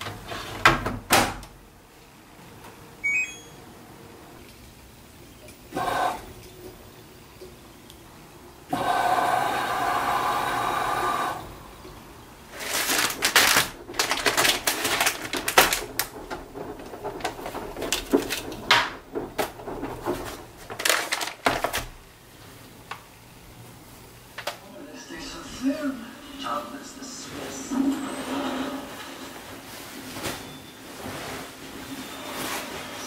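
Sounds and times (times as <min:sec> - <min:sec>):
plastic wrappers crinkling: 0:12.5 - 0:22.1.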